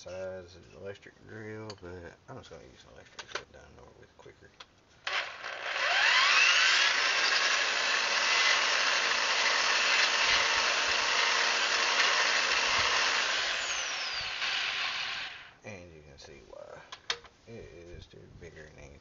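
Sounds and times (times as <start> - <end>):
electric drill whining: 5.0 - 15.6.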